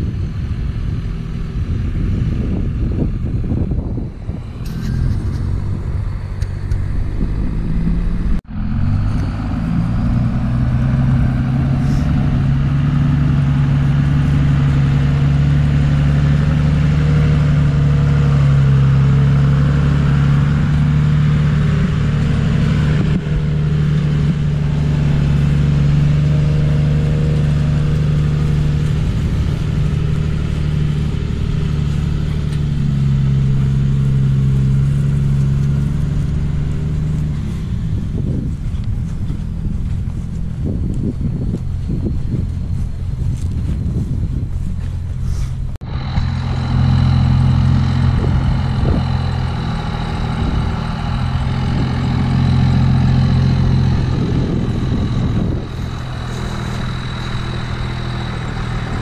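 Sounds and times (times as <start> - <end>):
pickup truck engine drone: 0.0 - 59.0.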